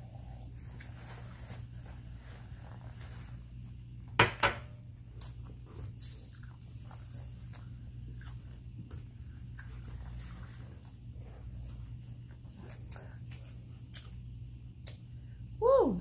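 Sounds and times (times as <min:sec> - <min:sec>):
chewing and mouth clicks: 0:05.1 - 0:15.1.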